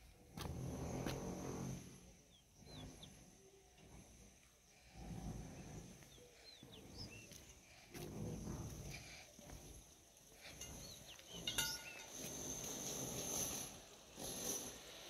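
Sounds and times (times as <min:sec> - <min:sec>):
birds chirping: 0:00.8 - 0:12.6
soft low rumbles: 0:03.8 - 0:11.8.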